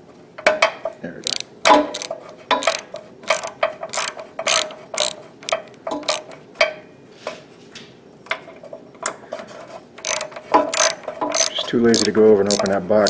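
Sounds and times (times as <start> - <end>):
socket ratchet clicking: 1.2 - 6.3, 10.0 - 12.8.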